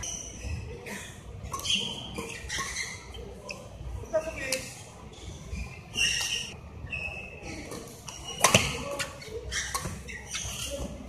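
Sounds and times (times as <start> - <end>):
shoe squeaks on court: 1.5 - 3.7, 5.3 - 11.0.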